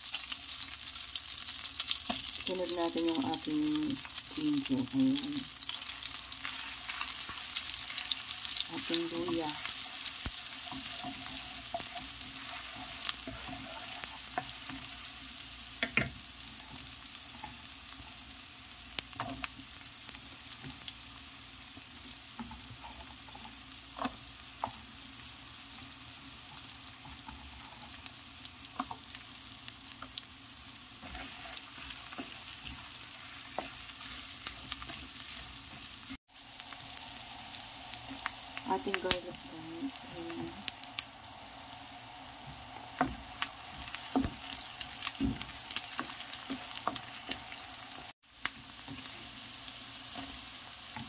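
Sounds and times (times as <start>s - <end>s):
food sizzling in butter: 0.0s - 51.0s
spatula stirring and clicking on pan: 1.6s - 2.5s, 5.6s - 18.2s, 21.7s - 25.3s, 26.4s - 29.3s, 31.0s - 36.2s, 42.5s - 49.2s.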